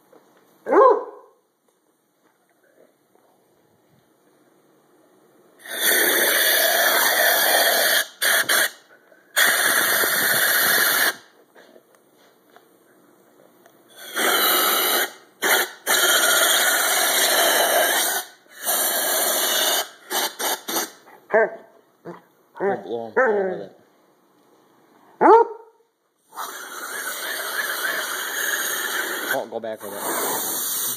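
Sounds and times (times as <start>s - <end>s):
air blow gun hissing: 5.6s - 11.3s, 13.9s - 21.0s, 26.2s - 30.9s.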